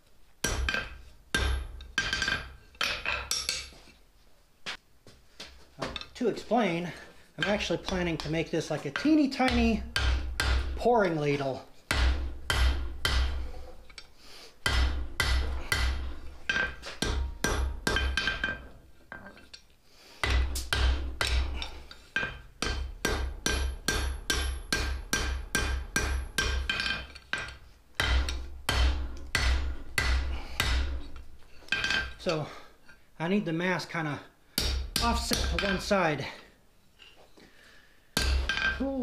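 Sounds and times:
hammer striking steel on anvil: 0.4 - 3.7, 7.4 - 10.8, 11.9 - 13.6, 14.6 - 19.3, 20.2 - 32.3, 34.6 - 36.0, 38.2 - 39.0.

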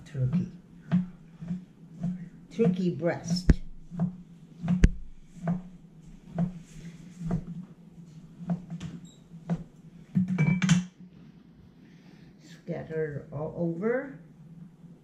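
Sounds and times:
knife chopping on cutting board: 0.3 - 5.7.

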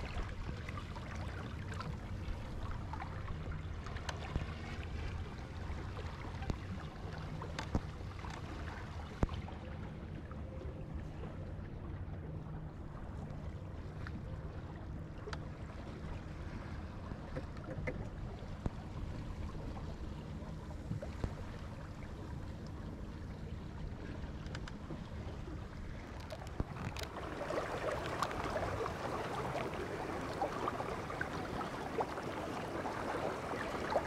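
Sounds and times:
faint ticks: 7.4 - 8.5, 24.3 - 25.0
water washing along boat hull: 13.0 - 34.0.

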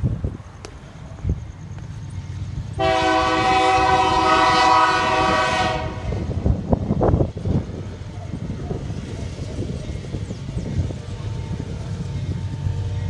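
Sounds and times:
locomotive air horn chord: 2.8 - 6.3.

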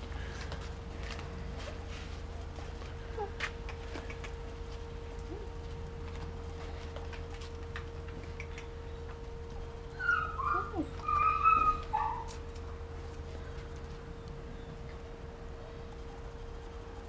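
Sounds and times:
faint hum: 0.0 - 17.0
dog whining: 9.9 - 12.4.

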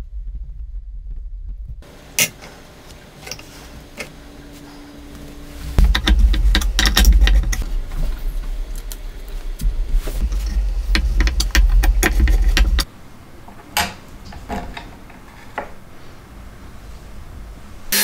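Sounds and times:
wooden parts clattering: 5.8 - 8.9, 10.2 - 12.9, 13.5 - 15.8.

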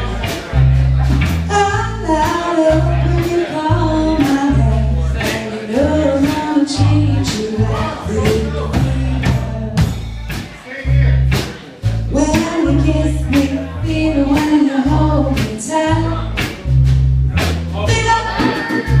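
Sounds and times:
bass line: 0.0 - 19.0
drums: 0.0 - 19.0
woman singing: 1.5 - 10.0, 12.1 - 16.4, 17.9 - 19.0.

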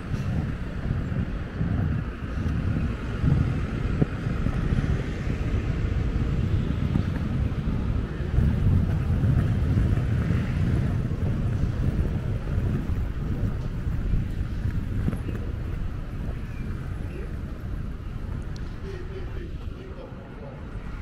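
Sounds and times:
traffic rumble: 0.0 - 21.0
wind buffeting microphone: 0.0 - 21.0.

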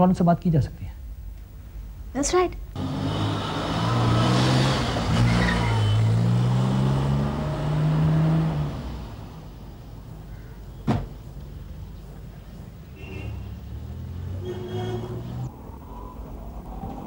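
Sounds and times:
van engine accelerating: 2.8 - 10.1
car door shutting: 10.8 - 11.2.

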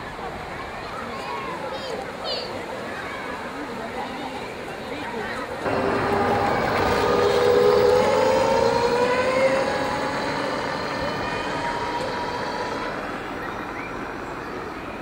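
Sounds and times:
murmur of people: 0.0 - 15.0
electric motor whining: 5.7 - 13.4.

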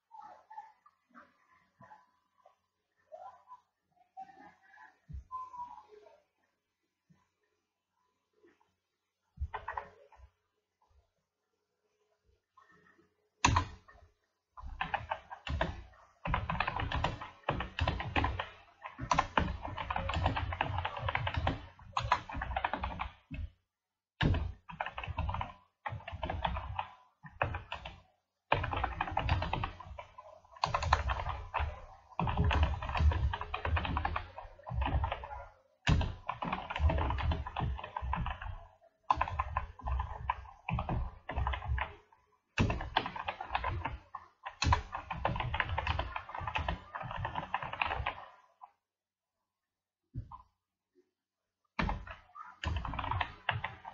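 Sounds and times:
keyboard typing: 9.5 - 10.2, 13.4 - 23.6, 24.2 - 48.6, 51.8 - 53.9.

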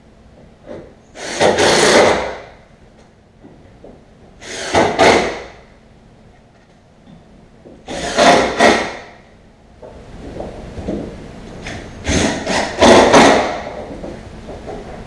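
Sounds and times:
cordless drill driving screws: 7.9 - 8.9.

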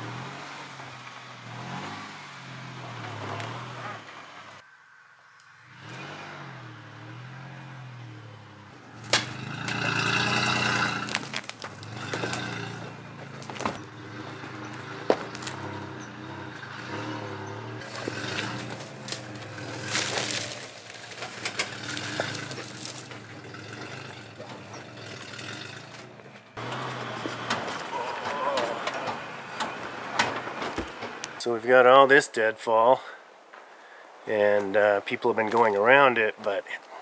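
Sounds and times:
pickup engine at low revs: 5.6 - 31.4
tyres crunching over loose rock: 9.0 - 31.4.

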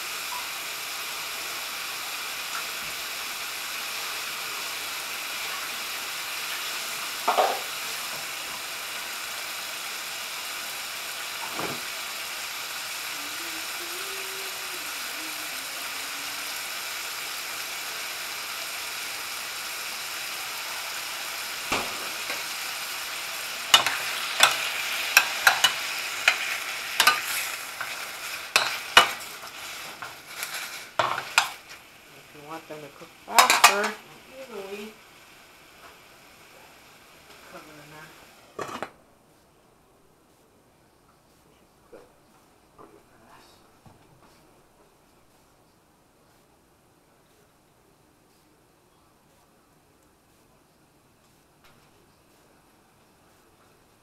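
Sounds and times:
meat sizzling in a skillet: 0.0 - 38.7
utensil scraping a pan: 23.6 - 31.8.

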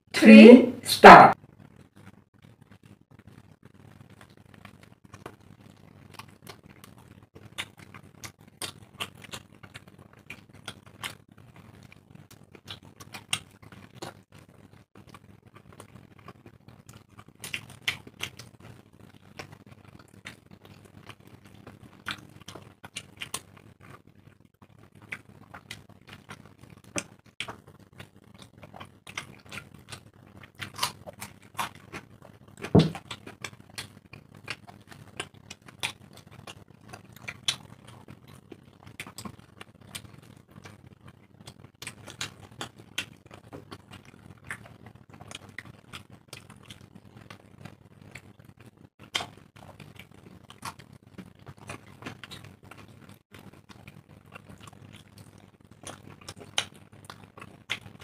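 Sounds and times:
people chewing food: 1.4 - 58.0.

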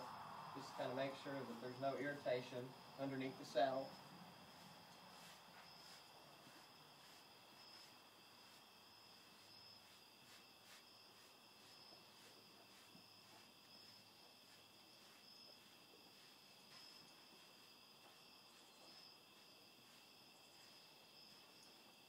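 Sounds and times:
crickets chirping: 0.0 - 22.0.

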